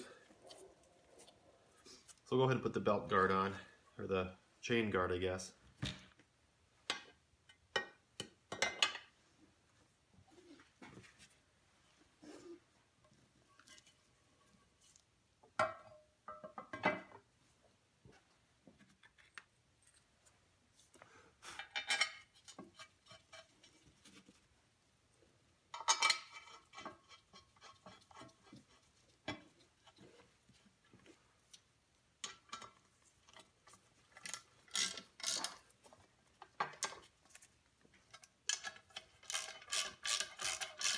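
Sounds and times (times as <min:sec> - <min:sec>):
faint handling sounds: 0:00.0 - 0:05.8, 0:17.4 - 0:25.3, 0:26.3 - 0:39.7.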